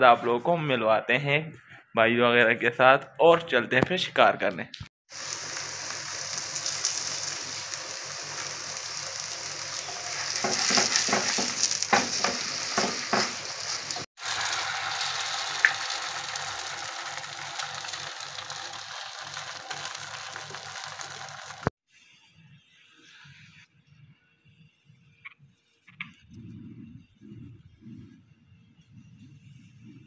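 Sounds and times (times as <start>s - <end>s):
flatbread sizzling on griddle: 5.1s - 21.8s
knocks and scrapes on griddle: 10.4s - 14.0s.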